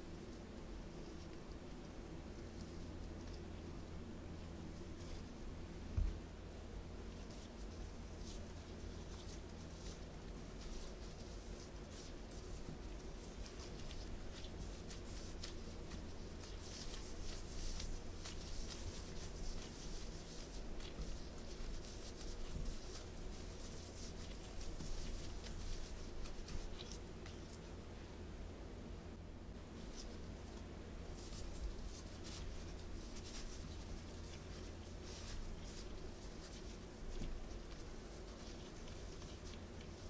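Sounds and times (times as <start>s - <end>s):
low steady hum: 0.0s - 40.0s
hands squeezing crumbly dough: 6.8s - 27.9s, 29.6s - 40.0s.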